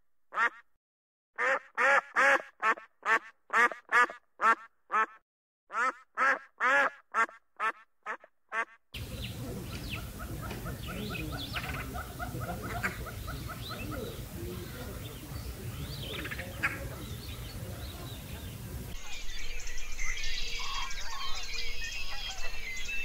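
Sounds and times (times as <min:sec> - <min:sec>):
duck nasal honks: 0:01.4 - 0:08.8
outdoor ambience: 0:05.8 - 0:23.0.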